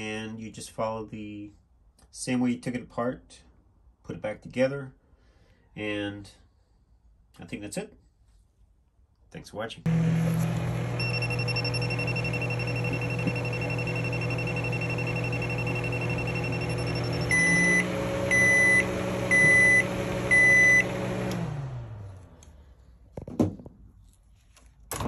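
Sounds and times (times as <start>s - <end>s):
microwave oven humming: 9.9s - 22.4s
microwave beeps: 10.8s - 21.3s.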